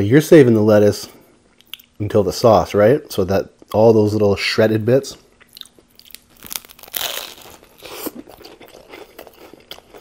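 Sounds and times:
crunchy chewing of sandwich: 5.4s - 10.0s.

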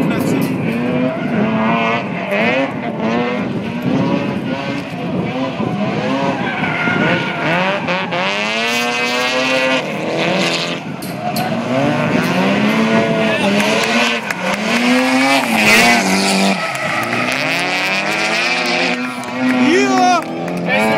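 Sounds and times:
car engines revving hard: 0.0s - 20.9s
tyres squealing: 13.3s - 18.2s.

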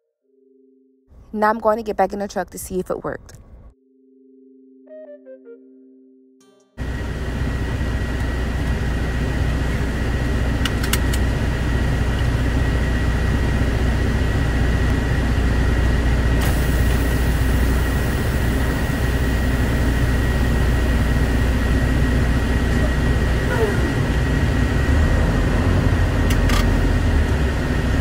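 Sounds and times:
diesel engine idling: 6.8s - 28.0s.

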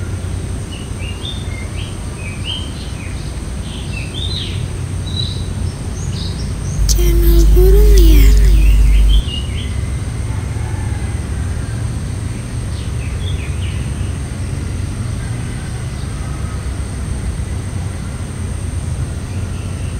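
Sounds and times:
low outdoor rumble: 6.6s - 9.6s.

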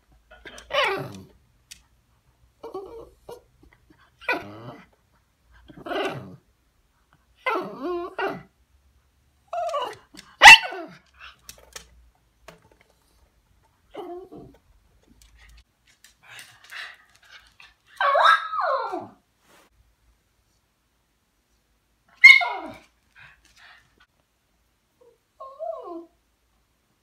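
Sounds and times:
dog barking sharply: 10.4s - 10.9s.

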